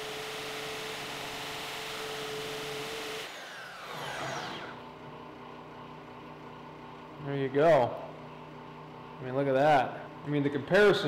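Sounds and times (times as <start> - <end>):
bandsaw cutting steel: 0.0 - 4.9.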